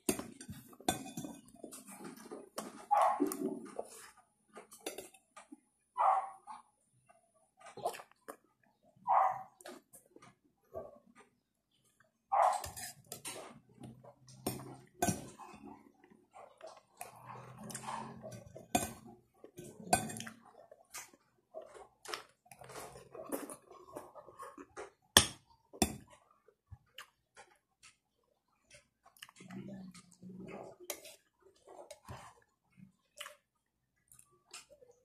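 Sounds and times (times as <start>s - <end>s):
person chewing: 7.6s - 8.8s, 12.0s - 25.2s, 25.8s - 35.0s.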